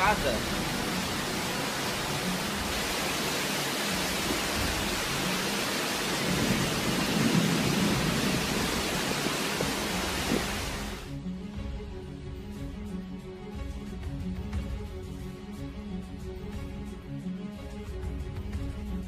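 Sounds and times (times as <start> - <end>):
rain: 0.0 - 11.3
strong wind: 0.4 - 11.1.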